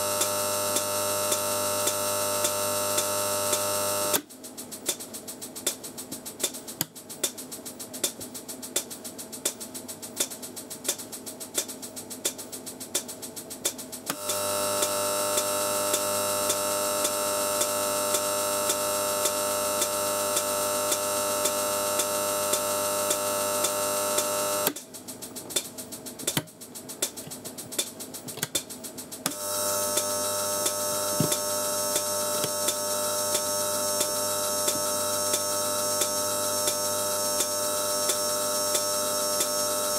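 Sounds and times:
electrical discharge buzzing: 0.0 - 4.2, 14.1 - 24.8, 29.3 - 39.9.

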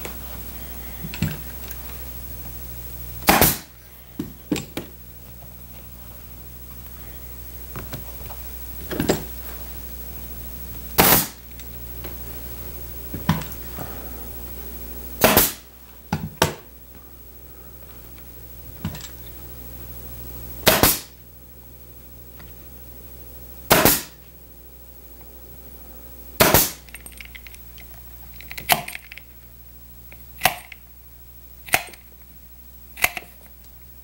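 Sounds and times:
staple gun shots: 3.2 - 3.6, 11.0 - 11.4, 15.2 - 15.6, 20.6 - 21.1, 23.7 - 24.2, 26.4 - 26.8.

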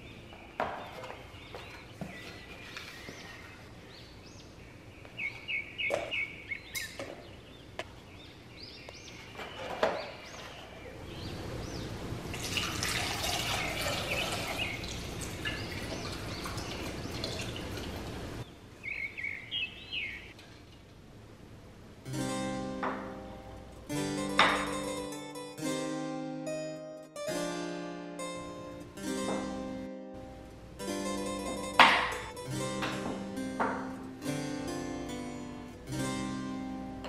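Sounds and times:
water pouring into pot: 12.4 - 18.1.

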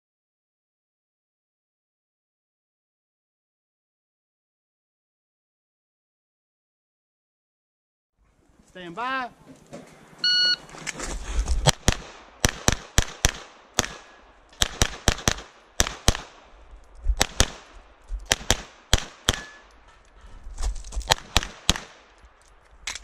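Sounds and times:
shot timer beep: 10.2 - 10.6
pistol shots with echo: 11.7 - 16.5, 17.2 - 17.7, 18.3 - 19.7, 21.1 - 22.1.

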